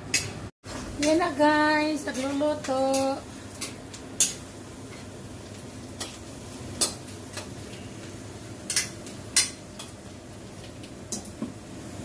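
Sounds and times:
frying sizzle: 0.0 - 12.0
metal clinking on a pan: 2.1 - 4.4.

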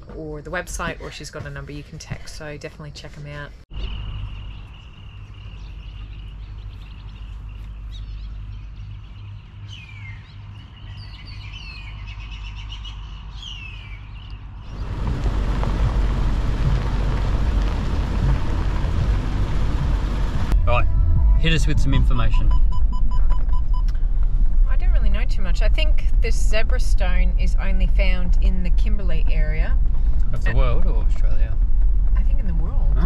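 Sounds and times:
birds chirping: 3.5 - 20.6
rushing noise with low rumble: 14.4 - 33.0
high-pitched drone: 20.5 - 22.7.

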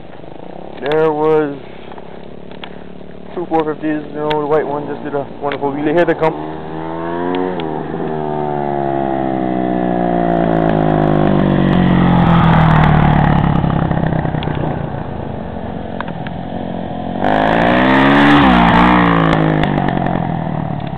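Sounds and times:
dirt bike engine revving: 3.3 - 15.1, 16.5 - 20.6.

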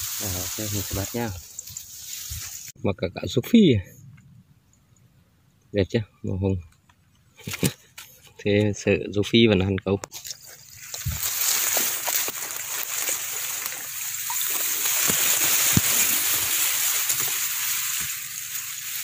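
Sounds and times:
rice stalks rustling: 0.0 - 2.8, 10.1 - 19.0
water sloshing: 10.2 - 19.0.

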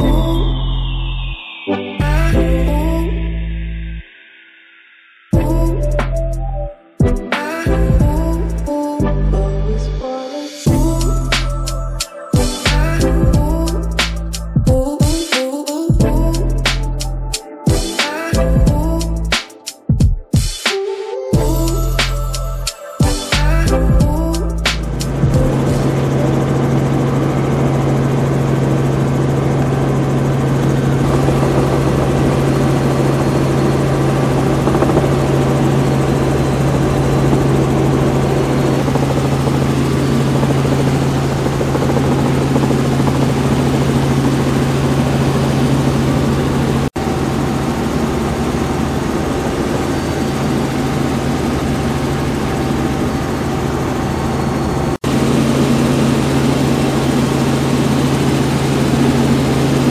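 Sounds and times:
helicopter engine drone: 0.0 - 4.3, 4.9 - 6.3, 7.0 - 9.4, 10.5 - 20.6, 21.4 - 59.9
rotor hum: 23.4 - 59.9.

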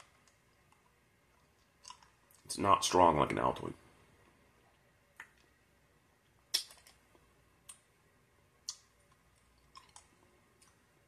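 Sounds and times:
mouth clicks: 6.5 - 6.9, 8.6 - 8.9.

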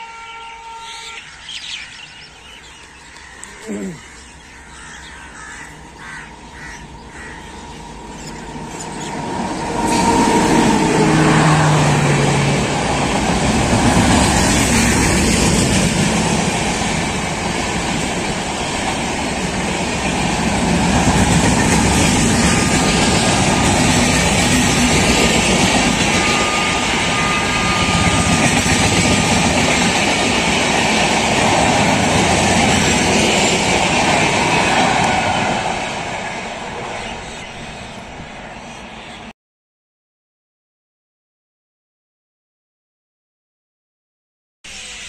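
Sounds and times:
train horn: 0.0 - 1.4, 9.7 - 13.0, 21.8 - 29.6
train passing at speed: 0.0 - 39.3
birds chirping: 0.7 - 9.8, 36.7 - 39.3.

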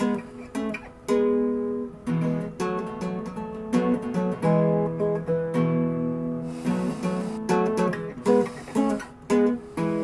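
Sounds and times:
acoustic guitar strumming: 0.0 - 10.0.

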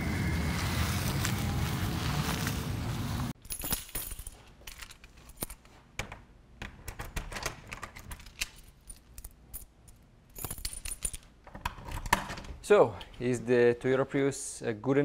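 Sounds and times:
keys jangling: 3.4 - 5.7, 7.3 - 12.1.

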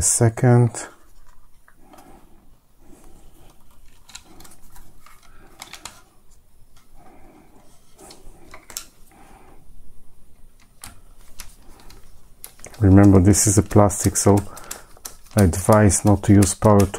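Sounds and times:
plastic parts rubbing and clicking: 1.0 - 2.1, 3.3 - 7.0, 7.6 - 9.0, 10.4 - 16.9.

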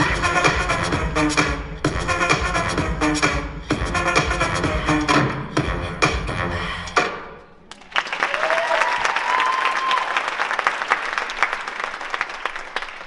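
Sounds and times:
audience applauding: 7.7 - 13.0
high held cheer: 7.8 - 13.0.

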